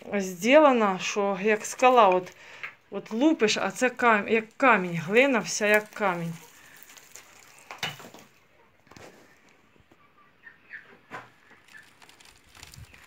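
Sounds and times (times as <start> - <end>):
dry clay crumbling: 1.4 - 9.6, 11.2 - 13.0.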